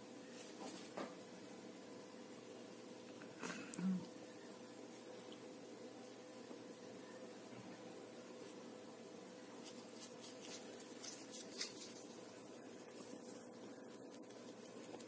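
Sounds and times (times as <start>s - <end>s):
low room hum: 0.0s - 15.0s
faint scratching and clicks: 12.8s - 15.0s.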